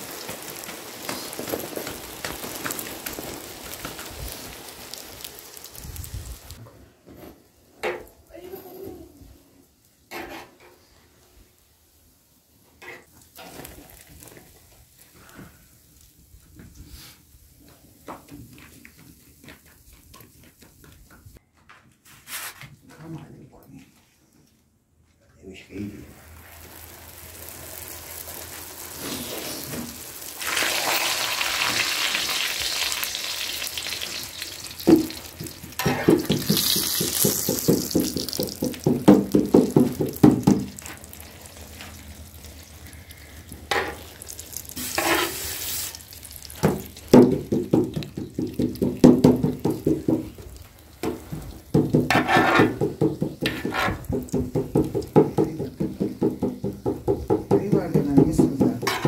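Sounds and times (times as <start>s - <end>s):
hot oil sizzling: 0.0s - 6.6s, 9.6s - 21.4s, 26.0s - 59.0s
spoon basting and scraping: 43.7s - 46.0s, 52.1s - 54.2s.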